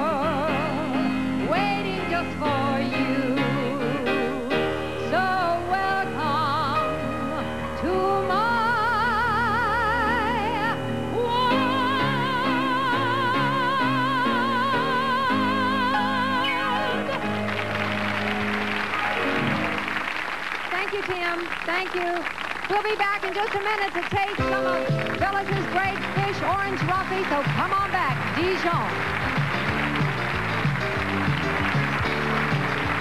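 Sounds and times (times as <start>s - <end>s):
woman singing a ballad: 0.0s - 17.2s
band accompaniment: 16.0s - 20.4s, 24.3s - 33.0s
audience applause: 16.4s - 33.0s.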